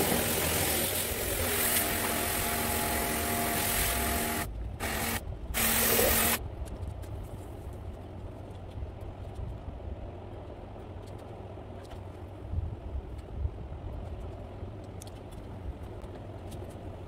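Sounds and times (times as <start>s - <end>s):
pressure washer motor hum: 0.0s - 6.4s
water spray hiss: 0.0s - 6.4s.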